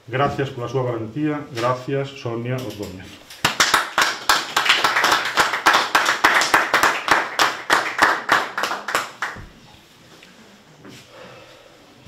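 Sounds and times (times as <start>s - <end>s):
hands clapping in applause: 3.3s - 9.5s.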